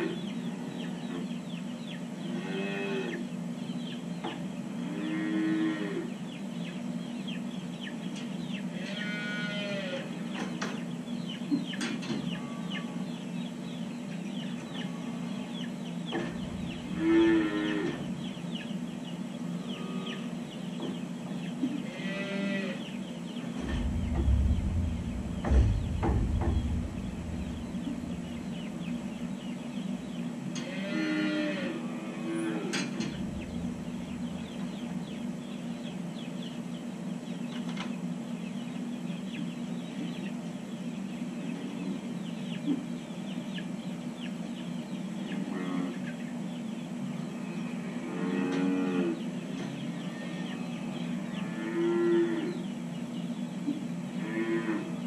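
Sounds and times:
calves mooing and bawling: 0.0 - 1.1, 2.3 - 3.3, 4.8 - 6.2, 8.7 - 10.3, 16.2 - 18.4, 19.5 - 20.4, 21.8 - 23.0, 30.5 - 34.5, 45.3 - 46.2, 47.3 - 52.6, 54.1 - 55.0
low rumble with knocks: 16.1 - 17.3, 23.4 - 29.5, 33.0 - 35.2
low hum: 16.2 - 18.6, 23.4 - 30.4, 32.9 - 35.7.

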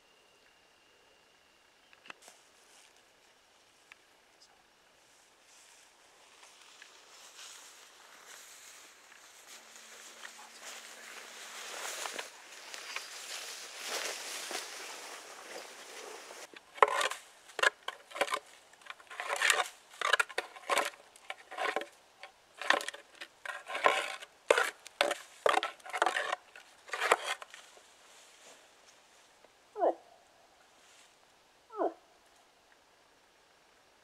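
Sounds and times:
steady hiss: 1.8 - 17.6
branches crunching and rustling: 5.5 - 29.4.

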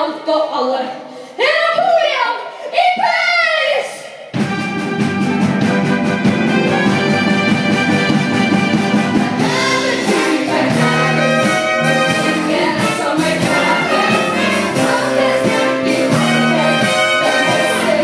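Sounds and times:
brass and clarinet band: 4.4 - 18.0
cast singing: 9.4 - 18.0.

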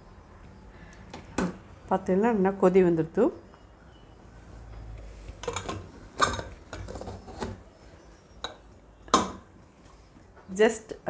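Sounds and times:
metal pot lid clinking: 5.4 - 7.1.

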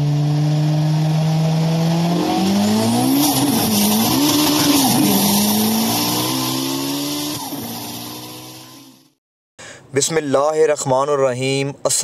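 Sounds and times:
sports car engine revving: 0.0 - 9.1
tyre screech: 2.6 - 8.9.

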